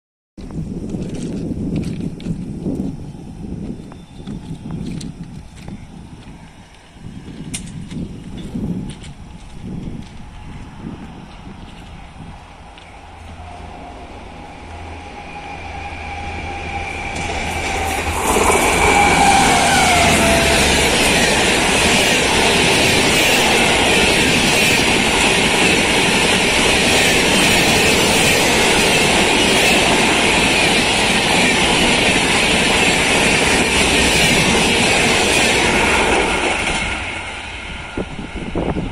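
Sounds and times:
locomotive whine: 0:02.2 - 0:38.9
train rushing past: 0:06.1 - 0:38.9.

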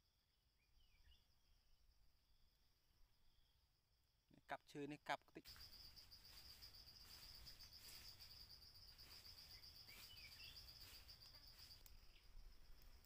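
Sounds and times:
faint bird chirps: 0:00.5 - 0:02.5, 0:03.1 - 0:03.7, 0:05.4 - 0:13.0
high-pitched insect trill: 0:05.3 - 0:13.0.

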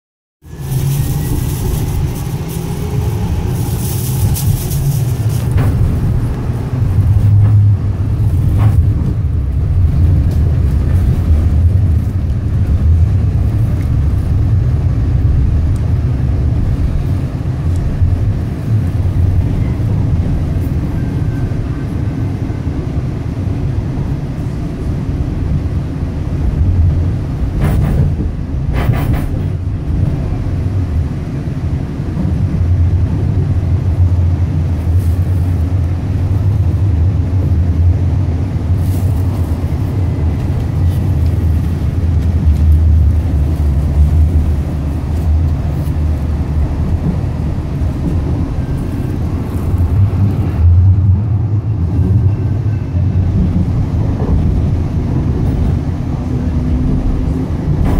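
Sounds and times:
train interior rumble: 0:00.4 - 0:57.9
train knocks: 0:00.5 - 0:11.8, 0:26.6 - 0:30.6, 0:40.0 - 0:57.9.

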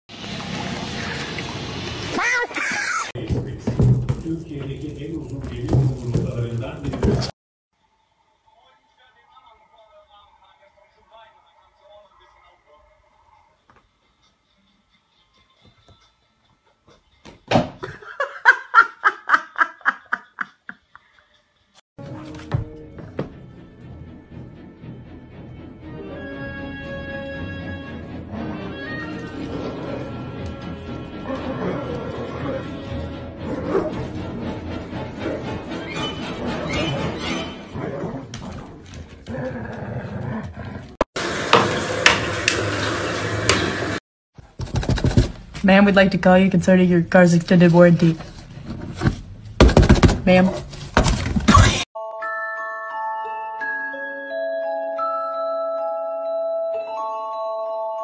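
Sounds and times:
person laughing: 0:17.8 - 0:21.5
dogs growling: 0:28.2 - 0:41.0.

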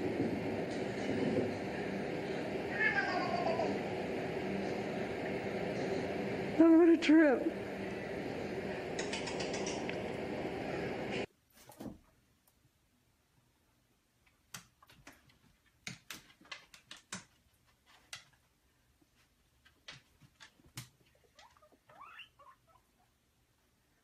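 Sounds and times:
guinea pig squeak: 0:21.3 - 0:23.0.

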